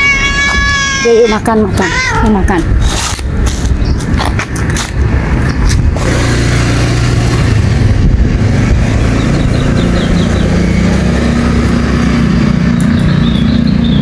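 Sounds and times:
rustling and scraping: 2.2 - 6.0
vehicle engine running: 3.4 - 14.0.

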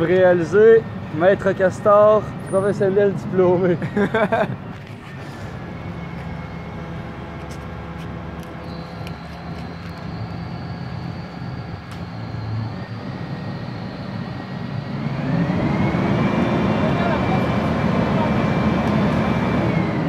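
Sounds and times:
crane engine running: 0.0 - 20.0
thin high whine: 5.0 - 15.0.

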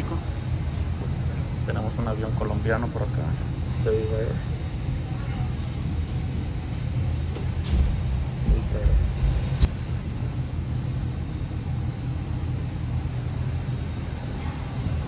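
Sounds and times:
low rumble of airport apron: 0.0 - 15.0
low thumps: 7.1 - 9.7.

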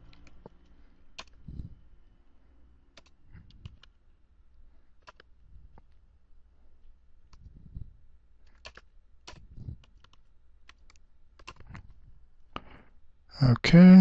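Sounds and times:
keyboard key clicks: 1.2 - 1.4, 8.5 - 11.9.

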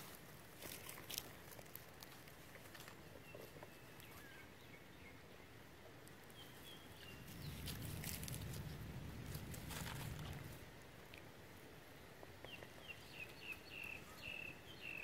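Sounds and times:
low rumble: 7.2 - 10.9.

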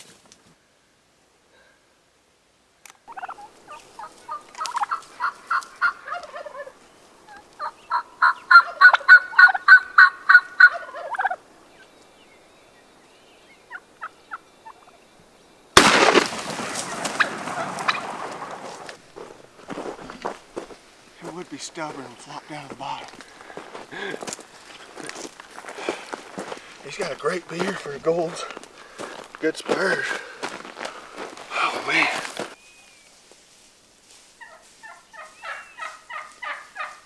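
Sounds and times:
turkey yelping: 3.1 - 11.4, 16.7 - 18.8, 34.4 - 37.0.

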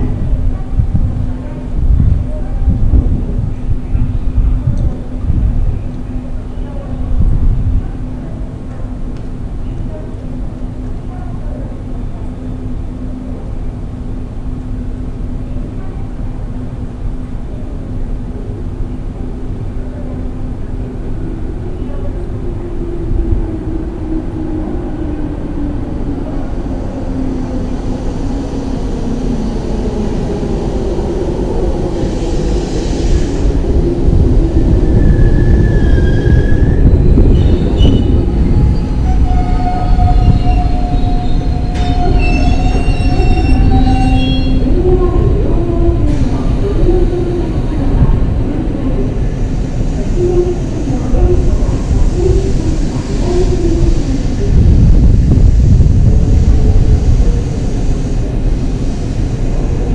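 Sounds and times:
train wheels rumbling on rail: 0.0 - 59.9
wheel and brake squeals: 39.4 - 44.6.

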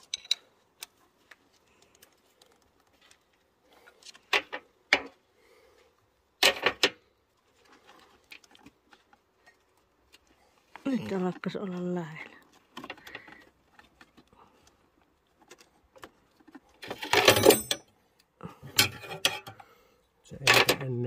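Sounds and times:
hands clicking and knocking parts: 0.0 - 5.3, 6.3 - 10.8, 12.4 - 19.7, 20.4 - 20.9.

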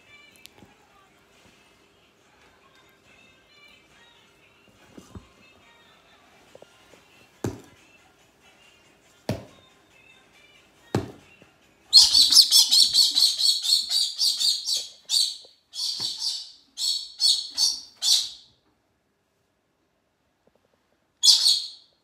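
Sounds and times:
cockatoo screeching: 11.9 - 18.5, 21.2 - 21.8.

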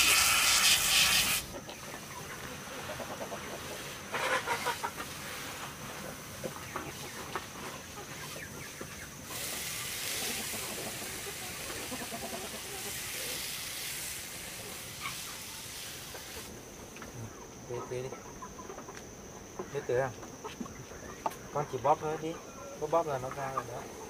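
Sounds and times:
steady hiss: 0.0 - 18.2
chickens clucking: 0.0 - 24.0.

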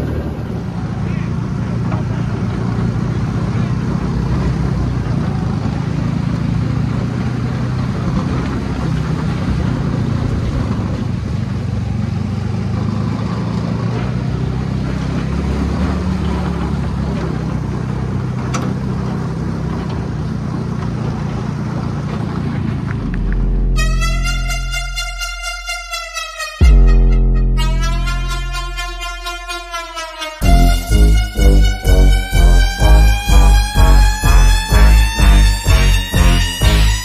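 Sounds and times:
buggy engine droning: 0.0 - 37.0
ride noise: 21.2 - 29.8, 30.4 - 37.0.

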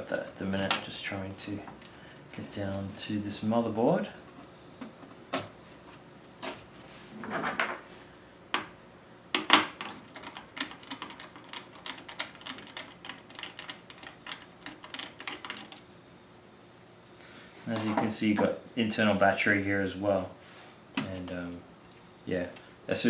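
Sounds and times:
rustling of handled parts: 9.5 - 15.9.

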